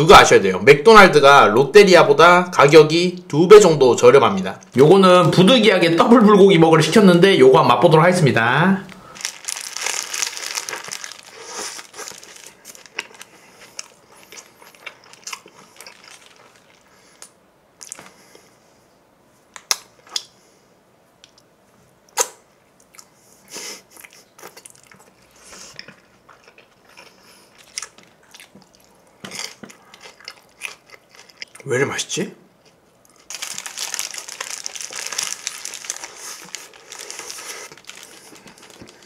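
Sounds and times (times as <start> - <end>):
paper wrapper crinkling: 8.8 - 17.2, 33.2 - 39.0
man chewing a burger: 10.6 - 18.2.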